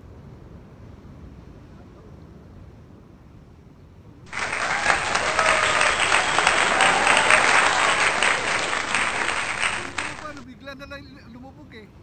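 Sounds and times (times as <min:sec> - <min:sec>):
crowd applause: 0:04.3 - 0:10.4.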